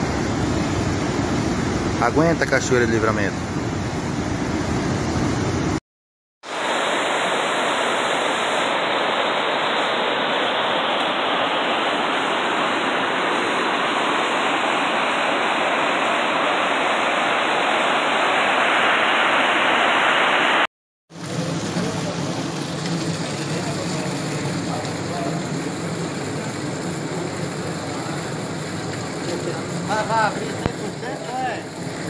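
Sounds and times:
water rushing down a spillway: 21.1s - 32.0s.

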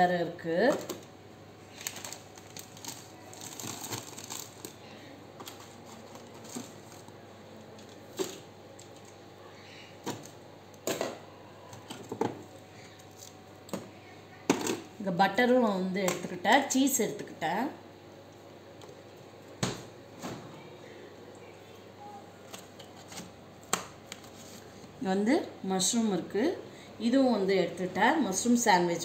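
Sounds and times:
plastic wrappers crinkling: 0.7s - 7.1s.

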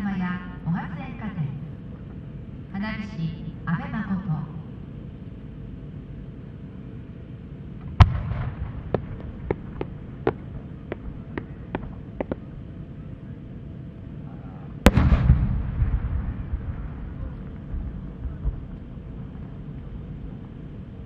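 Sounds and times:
rolling rumble: 7.7s - 13.4s, 14.8s - 21.0s.

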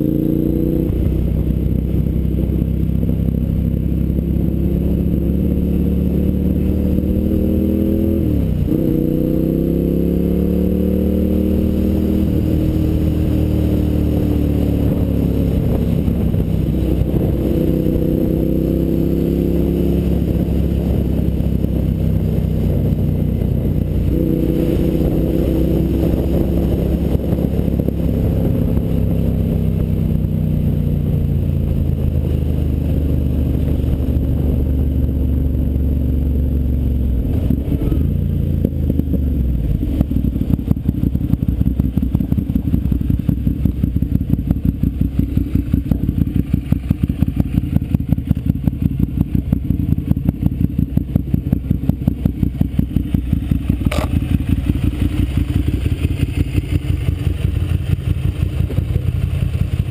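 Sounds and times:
motorcycle engine slowing and idling: 0.0s - 59.9s
sharp click: 53.9s - 54.2s.

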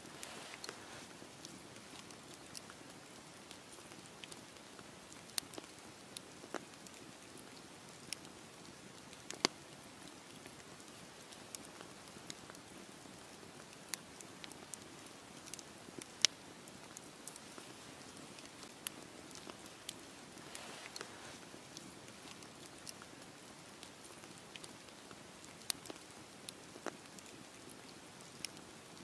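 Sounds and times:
campfire crackling and popping: 0.0s - 29.0s
faint steady fire hiss: 0.0s - 29.0s.

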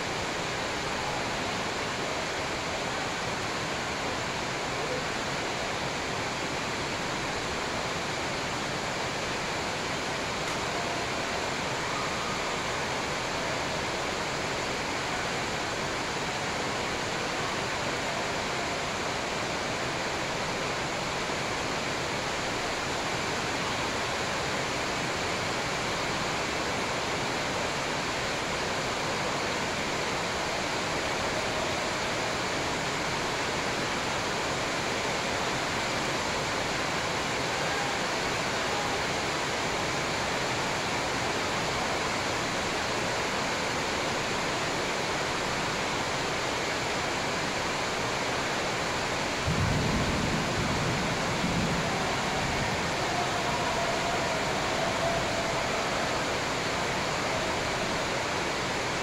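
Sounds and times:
steady rushing noise: 47.8s - 59.0s.

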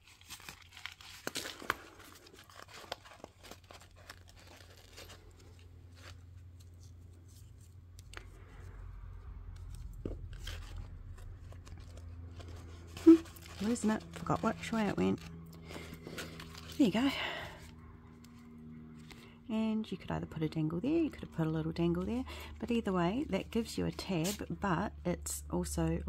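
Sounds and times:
sharp paper crackles: 0.0s - 8.7s, 9.5s - 19.3s
paper and card rustling: 0.0s - 19.3s, 20.9s - 24.6s
faint low hum: 0.0s - 26.0s.

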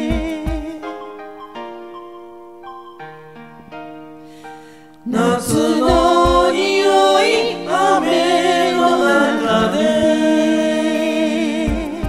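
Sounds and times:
voices singing in harmony: 0.0s - 1.2s, 5.0s - 12.0s.

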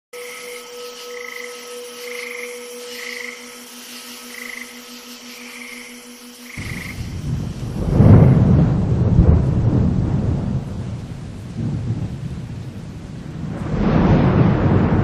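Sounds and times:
faint hiss: 0.2s - 8.8s
fast pulsing low drone: 0.2s - 9.8s
low rumble: 6.6s - 15.0s.

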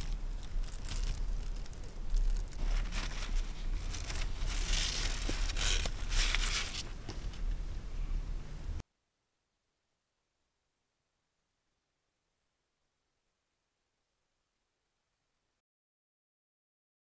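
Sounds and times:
tent fabric rustling: 0.0s - 7.4s.

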